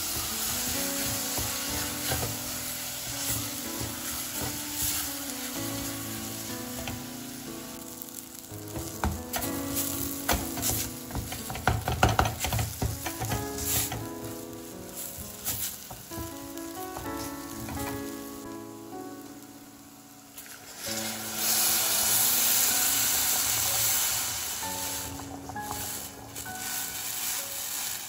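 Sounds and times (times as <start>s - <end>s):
wooden spoon stirring and scraping: 0.0s - 7.0s, 8.7s - 17.9s, 24.5s - 28.0s
food sizzling in a pot: 0.0s - 28.0s.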